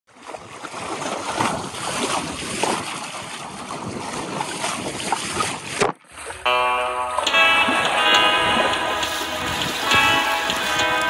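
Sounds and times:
water splashing against hull: 0:00.1 - 0:11.0
music: 0:06.5 - 0:11.0.

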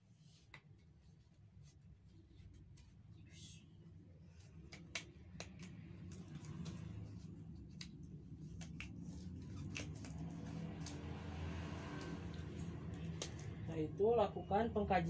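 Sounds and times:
low steady hum: 0:00.0 - 0:15.0
rubber gloves snapping and rustling: 0:04.5 - 0:11.2, 0:12.9 - 0:13.6.

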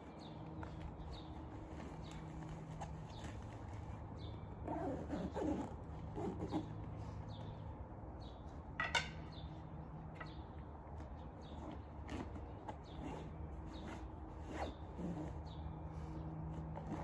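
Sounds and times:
canvas bag rustling: 0:00.0 - 0:06.8, 0:11.5 - 0:15.6
birds chirping: 0:00.0 - 0:16.7.

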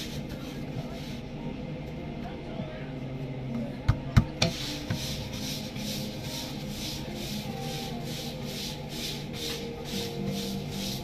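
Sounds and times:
dough rubbing strokes: 0:00.0 - 0:01.4, 0:04.4 - 0:11.0.

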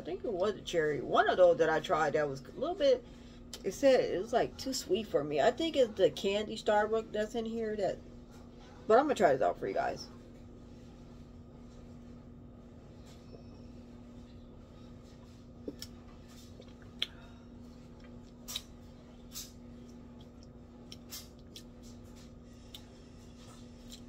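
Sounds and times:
steady low hum: 0:00.0 - 0:24.0
lip smacks and clicks: 0:15.7 - 0:17.2, 0:18.0 - 0:22.0.

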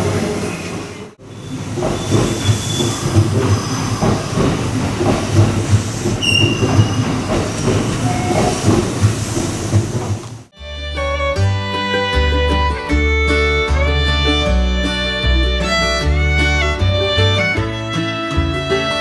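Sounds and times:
train rumbling on rails: 0:00.0 - 0:10.6
train wheel squeals: 0:00.2 - 0:09.3.

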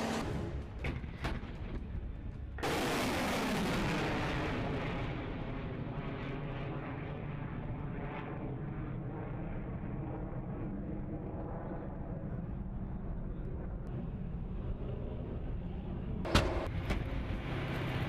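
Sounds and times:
rocket motor blast and rumble: 0:00.0 - 0:12.8.

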